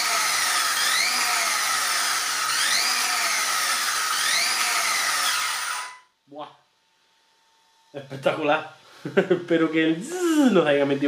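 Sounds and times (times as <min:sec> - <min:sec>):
electric motor whining at high revs: 0:00.0 - 0:06.0.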